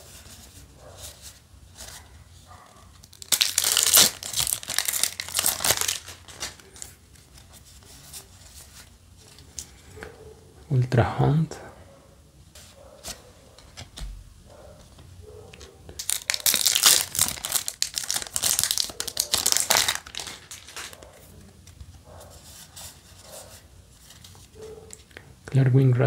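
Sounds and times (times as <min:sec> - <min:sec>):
cards being handled: 0:02.9 - 0:10.1, 0:14.8 - 0:25.2
foil wrapper tearing and crinkling: 0:03.0 - 0:07.0, 0:16.0 - 0:21.0.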